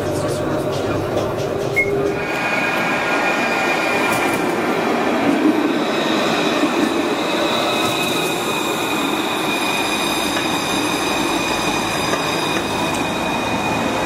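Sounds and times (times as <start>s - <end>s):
tram running on rails: 0.0s - 14.0s.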